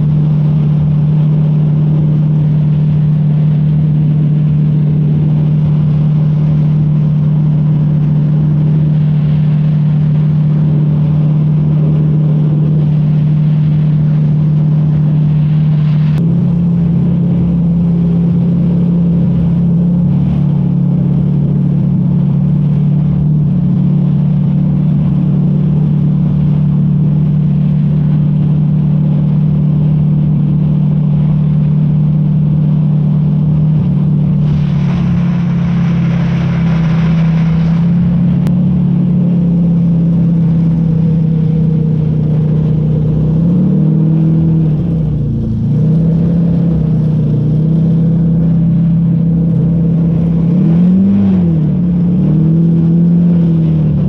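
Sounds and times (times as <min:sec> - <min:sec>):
airboat engine and propeller drone: 0:00.0 - 0:54.0
rushing hiss: 0:34.4 - 0:38.4.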